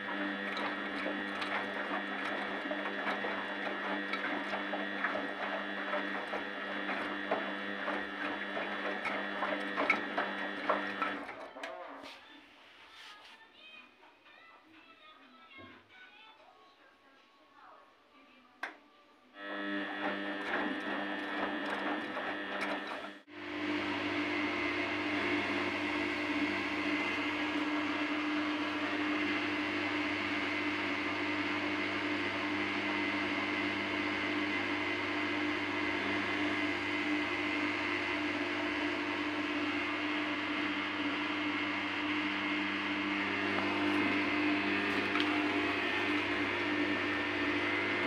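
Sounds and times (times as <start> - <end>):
washing machine drum hum: 0.0 - 12.2, 19.6 - 23.2
washing machine motor whine: 0.0 - 12.6, 19.4 - 48.0.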